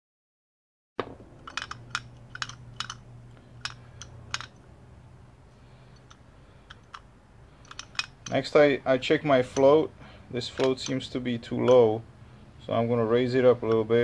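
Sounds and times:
screwdriver metallic clicks: 1.4 - 3.0, 3.6 - 4.6, 10.5 - 11.8.

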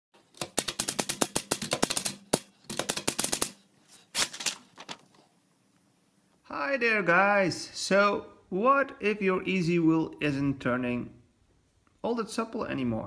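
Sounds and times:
paper pulled from typewriter: 3.9 - 5.0.

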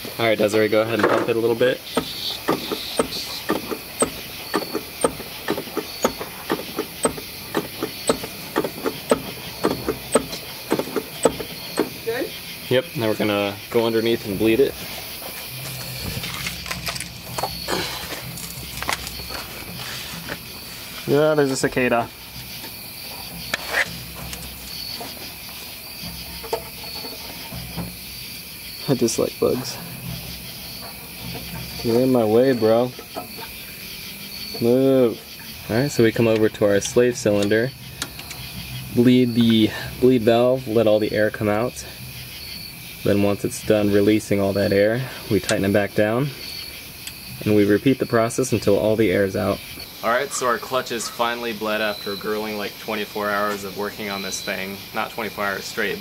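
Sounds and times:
insect trilling: 0.0 - 56.0
clutch pedal clicking and knocking: 1.9 - 12.0.

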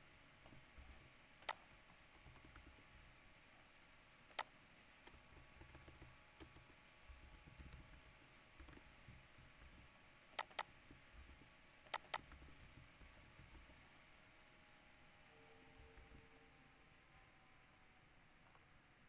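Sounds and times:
faint keyboard typing: 0.4 - 3.7, 4.3 - 14.1, 15.7 - 16.4, 18.4 - 18.7
sharp clicks: 1.4 - 2.5, 4.3 - 4.5, 10.3 - 10.7, 11.8 - 12.5.

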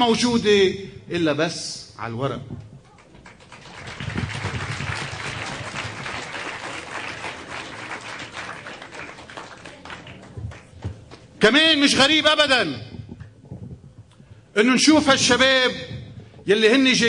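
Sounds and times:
audience applauding: 2.9 - 11.3.

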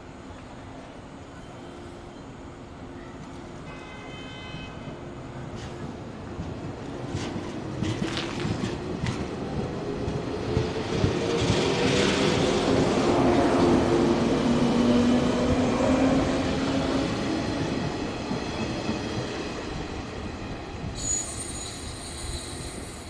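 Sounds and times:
train wheels rumbling: 5.4 - 23.0
wheels clicking over rail joints: 5.6 - 9.4
high-pitched wheel squeal: 21.0 - 23.0.

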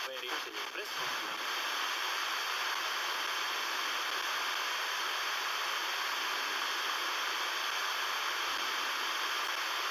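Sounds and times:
radio static hiss: 0.0 - 9.9.

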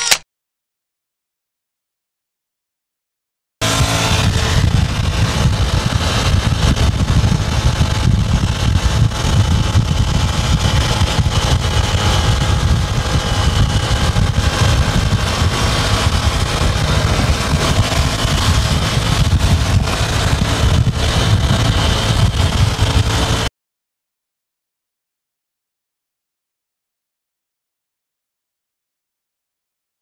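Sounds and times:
motorcycle cruising: 3.6 - 23.5
road and wind noise: 3.6 - 23.5.

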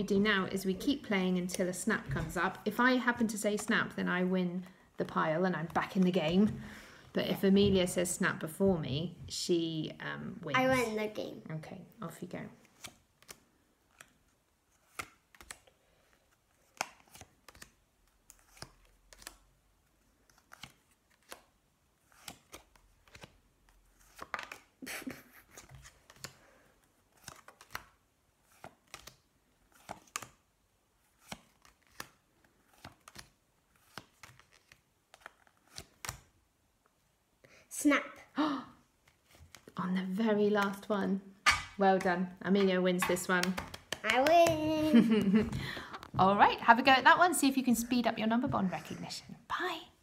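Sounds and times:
cards slapped on glass table: 42.6 - 44.6.

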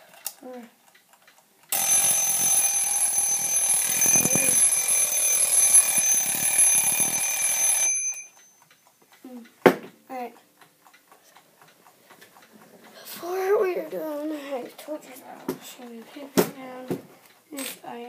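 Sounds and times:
alarm clock bells ringing: 1.7 - 8.7.

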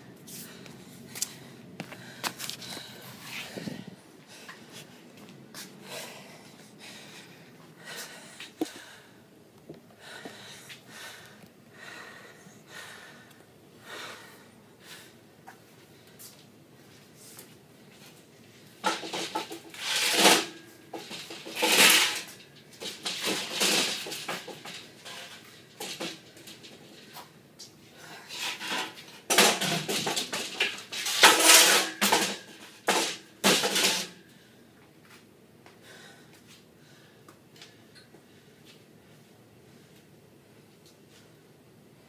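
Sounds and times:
metal exercise station rattling: 18.8 - 27.2, 28.5 - 34.2.

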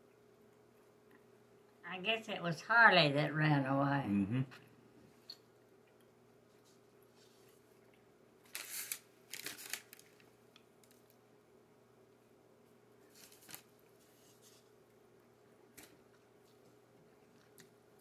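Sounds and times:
faint hum: 0.0 - 18.0
pastry tearing on paper plate: 8.5 - 10.1.

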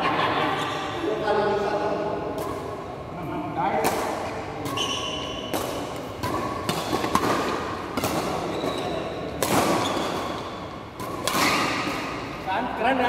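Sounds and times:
rackets hitting shuttlecock: 2.2 - 3.0, 3.6 - 12.5.

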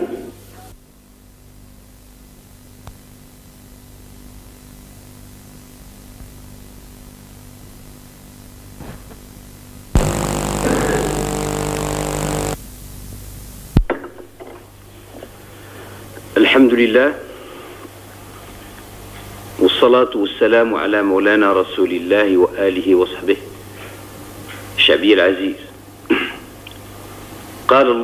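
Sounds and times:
loud buzz with high whine: 1.0 - 16.0
low steady hum: 10.0 - 13.5.

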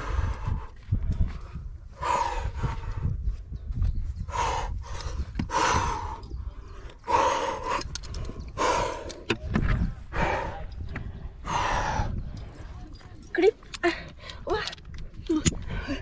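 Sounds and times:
person breathing hard: 0.0 - 3.4, 4.2 - 12.7.

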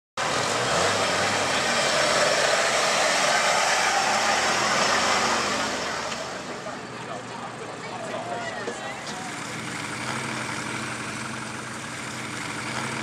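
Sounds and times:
loud rushing noise: 0.2 - 6.7
vehicle engine running: 0.2 - 13.0.

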